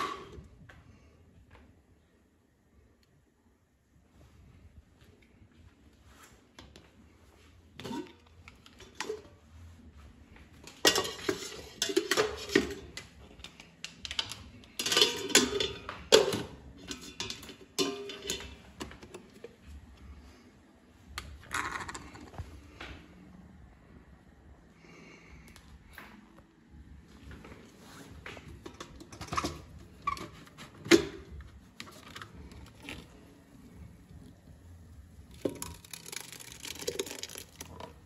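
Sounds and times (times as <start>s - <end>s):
dishes and utensils clinking: 10.6s - 19.4s.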